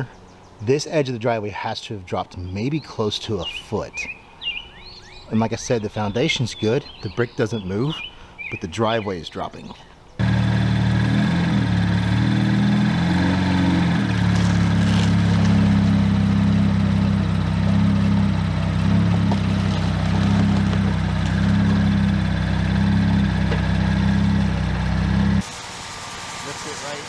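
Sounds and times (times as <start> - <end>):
car engine idling: 10.2 - 26.3.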